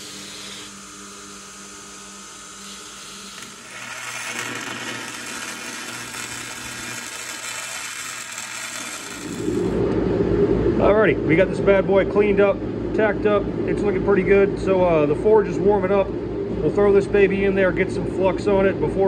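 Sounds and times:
electric welding arc crackling: 0:00.0 - 0:09.8
belt grinder grinding steel: 0:02.7 - 0:09.8.

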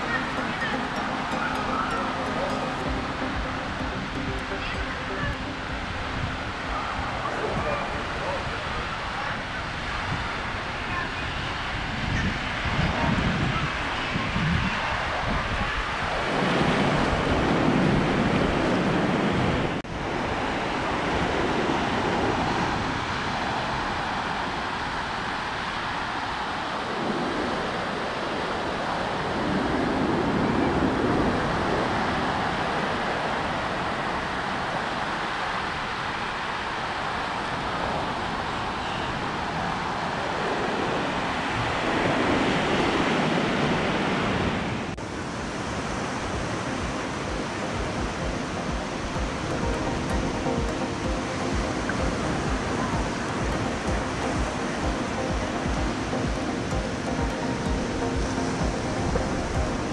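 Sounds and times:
ocean surf on a beach: 0:00.0 - 0:59.9
wind on microphone: 0:05.1 - 0:25.6.

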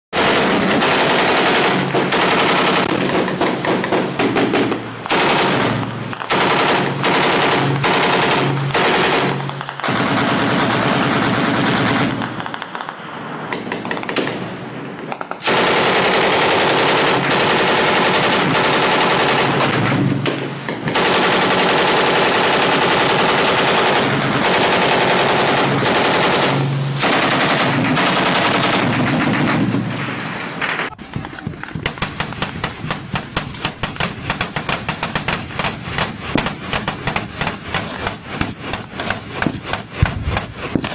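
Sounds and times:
automatic weapon fire: 0:00.2 - 0:12.9, 0:13.5 - 0:30.9.

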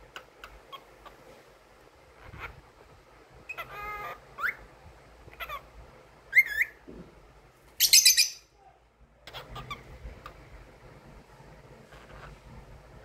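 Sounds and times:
cockatiel chirping and whistling: 0:06.3 - 0:06.8.

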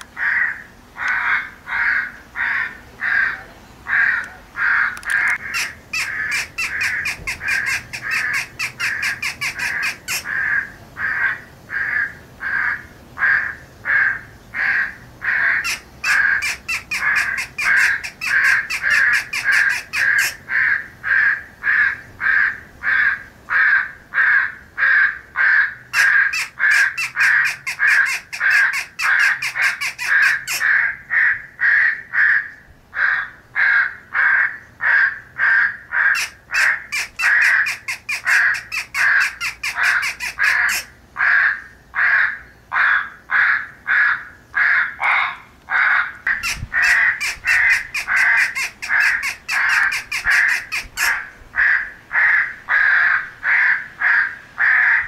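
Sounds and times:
crows cawing: 0:00.0 - 0:55.0.

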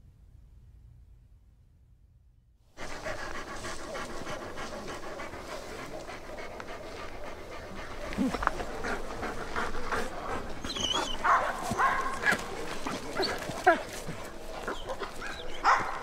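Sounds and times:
dogs whining and yipping: 0:10.4 - 0:16.0.

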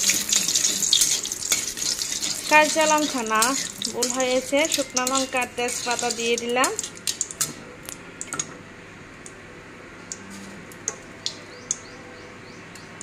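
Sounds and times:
chillies frying in hot oil: 0:00.0 - 0:08.5
oil popping and crackling: 0:00.0 - 0:08.5, 0:10.1 - 0:11.9.

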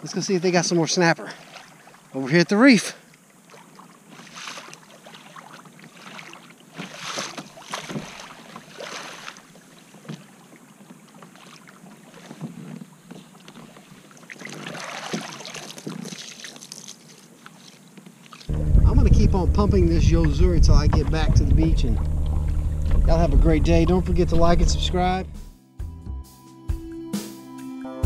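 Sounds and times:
water splashing against hull: 0:00.7 - 0:02.3, 0:03.0 - 0:25.4
wind on microphone: 0:18.5 - 0:25.4.

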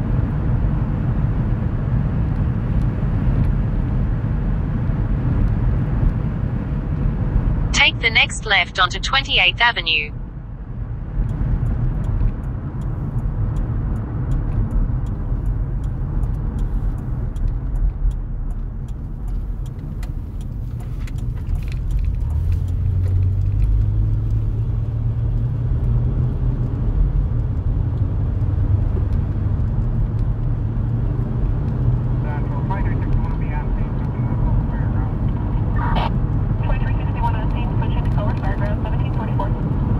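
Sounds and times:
car road noise and engine drone: 0:00.0 - 0:39.9
faint light ticks: 0:11.2 - 0:26.8.

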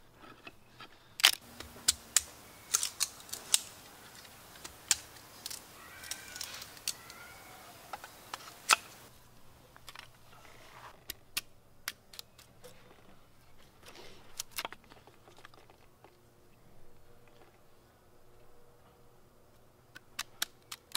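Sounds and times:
sticks of wood cracking: 0:00.2 - 0:09.1, 0:11.0 - 0:15.9, 0:19.9 - 0:20.9.

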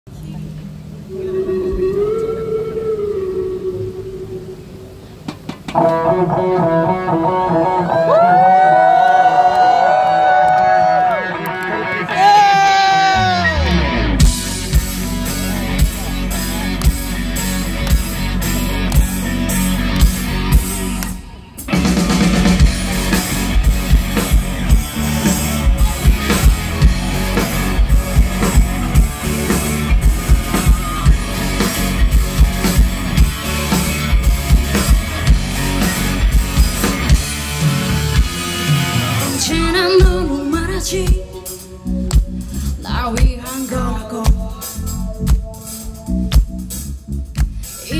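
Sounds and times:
electric guitar: 0:00.2 - 0:47.9
bass guitar: 0:05.3 - 0:47.9
drum kit: 0:12.2 - 0:47.9
woman singing: 0:39.3 - 0:41.8, 0:42.8 - 0:45.0.

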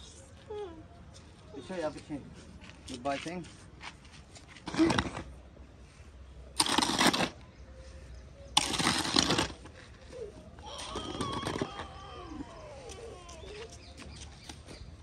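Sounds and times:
shovel scraping on brick paving: 0:03.0 - 0:05.4, 0:06.5 - 0:07.5, 0:08.5 - 0:11.8.

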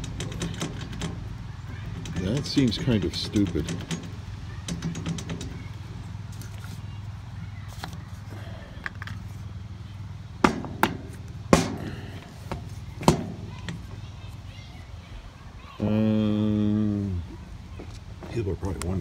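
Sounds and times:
tools knocking and clicking: 0:00.0 - 0:01.2, 0:01.9 - 0:05.7.

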